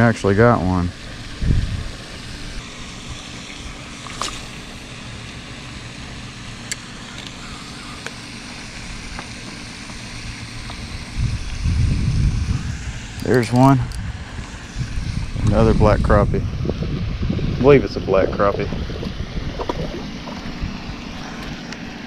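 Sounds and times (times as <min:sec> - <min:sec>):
wind rumble and hiss: 0:00.0 - 0:22.0
fishing reel clicks: 0:06.6 - 0:09.1.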